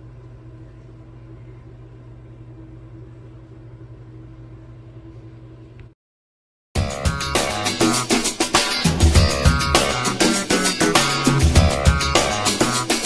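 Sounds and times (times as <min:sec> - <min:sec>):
machine hum: 0:06.8 - 0:13.0.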